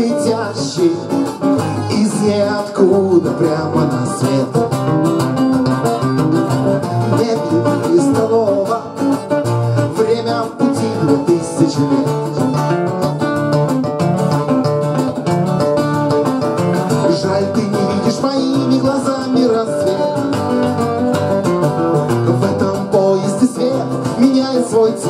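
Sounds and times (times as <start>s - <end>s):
acoustic guitars playing: 0.0s - 25.0s.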